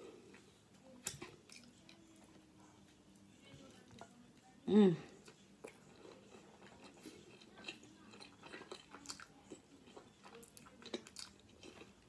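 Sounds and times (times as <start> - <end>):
person chewing soft food: 5.1 - 12.0.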